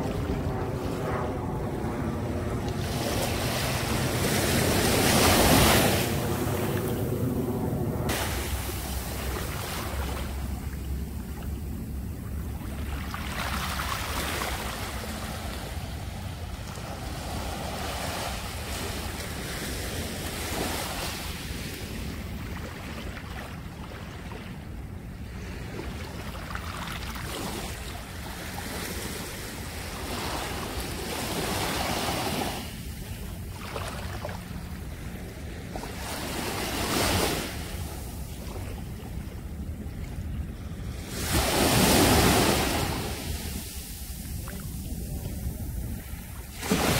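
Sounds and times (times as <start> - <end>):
wind rumbling on microphone: 0.0 - 46.9
seawater washing and splashing: 8.1 - 10.9.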